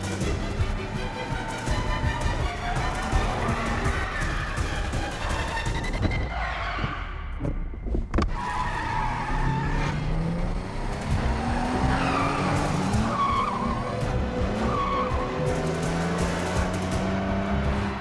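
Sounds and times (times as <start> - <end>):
tyres squealing on concrete: 8.3 - 10.3, 11.6 - 14.0, 14.6 - 15.6
car engine revving hard: 9.0 - 18.0.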